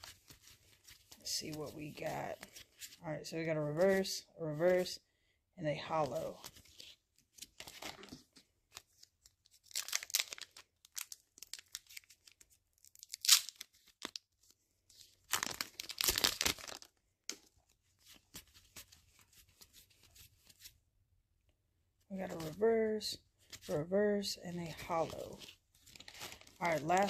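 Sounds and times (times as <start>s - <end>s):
foil wrapper tearing and crinkling: 9.6s - 14.2s, 15.2s - 17.0s, 25.9s - 27.0s.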